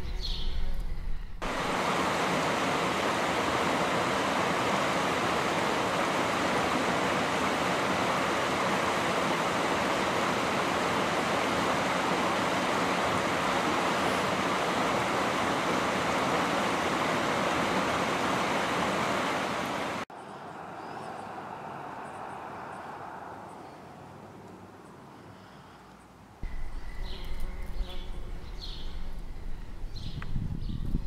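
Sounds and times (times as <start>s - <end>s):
river water rushing: 1.4s - 24.4s.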